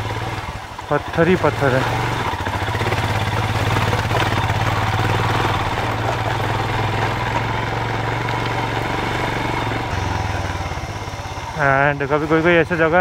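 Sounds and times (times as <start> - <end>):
motorcycle engine at low revs: 0.0 - 13.0.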